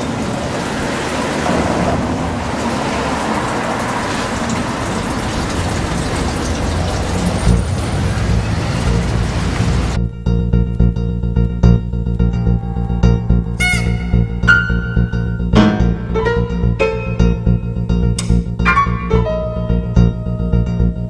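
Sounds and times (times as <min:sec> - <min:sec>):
loud wash of noise: 0:00.0 - 0:10.0.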